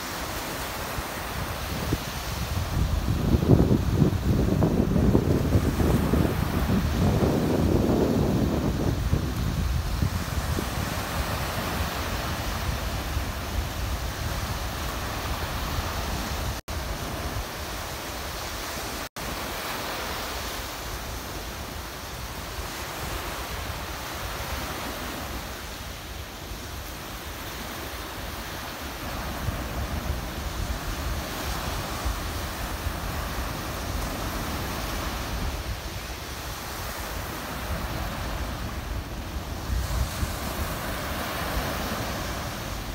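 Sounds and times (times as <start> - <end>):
waves washing on sandy shore: 0.0 - 42.9
wind buffeting microphone: 0.0 - 42.9.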